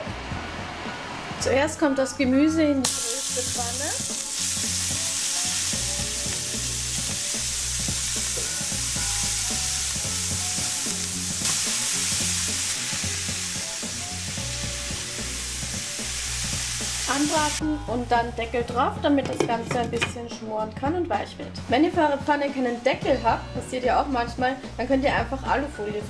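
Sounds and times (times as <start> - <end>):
vegetables sizzling in a pan: 2.8 - 17.6.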